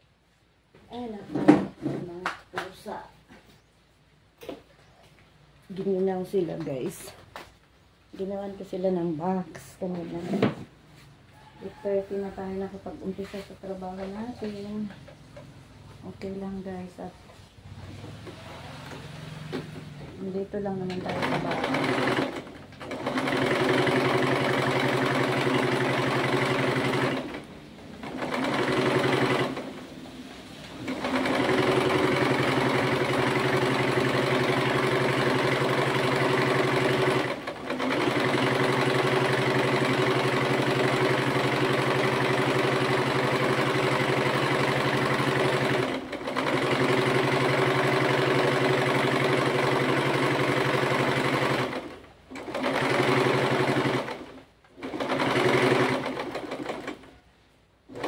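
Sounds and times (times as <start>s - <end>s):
sewing machine stitching: 17.7s - 29.8s, 30.7s - 57.2s.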